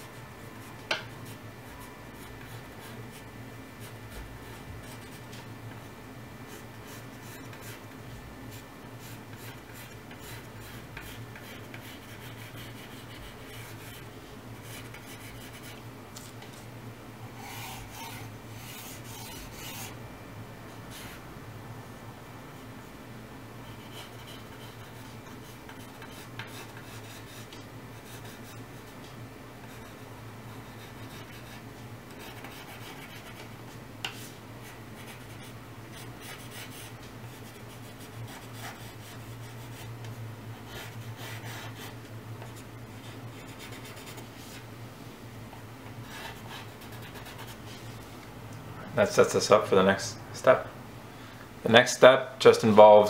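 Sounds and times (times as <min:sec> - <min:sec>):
pencil scratching on paper: 0:06.5 - 0:07.8, 0:08.5 - 0:15.8, 0:17.4 - 0:20.0, 0:23.7 - 0:28.6, 0:30.6 - 0:33.5, 0:34.1 - 0:39.9, 0:40.6 - 0:44.6, 0:46.0 - 0:47.9.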